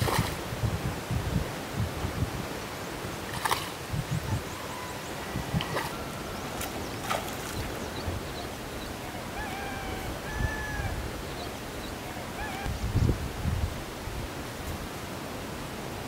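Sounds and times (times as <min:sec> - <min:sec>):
wind on microphone: 0:00.0 - 0:15.0.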